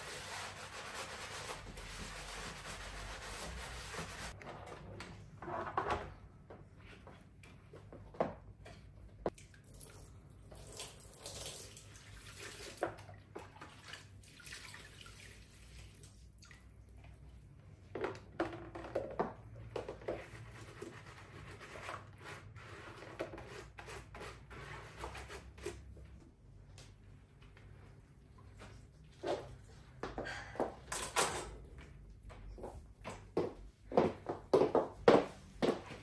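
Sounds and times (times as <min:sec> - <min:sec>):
water sloshing and dripping: 0:09.3 - 0:17.5.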